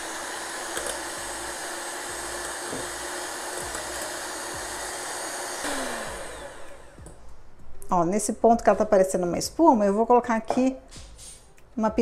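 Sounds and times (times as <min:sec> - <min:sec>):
electric mixer running: 0:00.0 - 0:07.2.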